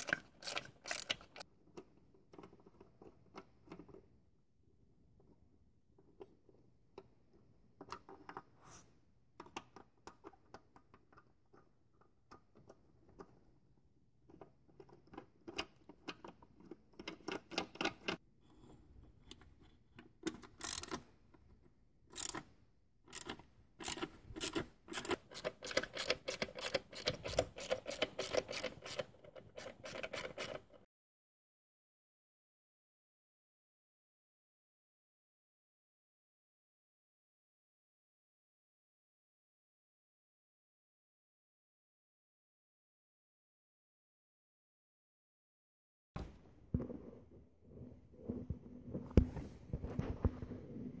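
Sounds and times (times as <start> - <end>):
hand ratchet clicking: 0.0 - 1.4, 20.6 - 21.0, 22.2 - 22.4, 23.1 - 30.6.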